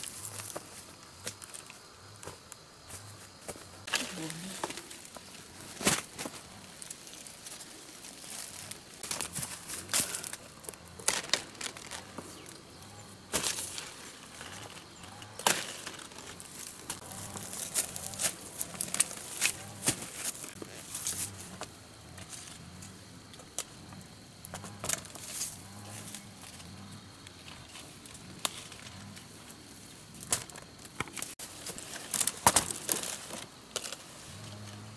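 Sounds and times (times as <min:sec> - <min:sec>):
leafy branches rustling: 0:03.0 - 0:21.6, 0:24.6 - 0:34.9
twigs snapping and crackling: 0:03.9 - 0:12.6, 0:13.3 - 0:21.3, 0:30.2 - 0:34.0.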